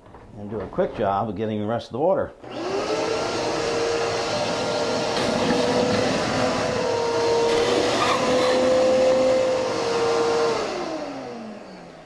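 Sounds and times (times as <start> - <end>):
shop vacuum whining: 2.4 - 12.0
vacuum motor winding down: 2.4 - 12.0.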